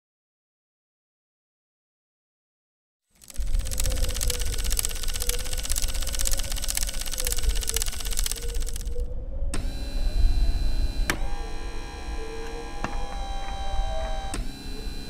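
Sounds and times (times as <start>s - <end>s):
rapid mechanical clicking: 3.2s - 9.7s
sharp clicks: 3.2s - 9.9s, 11.0s - 15.0s
servo motors whirring: 3.2s - 15.0s.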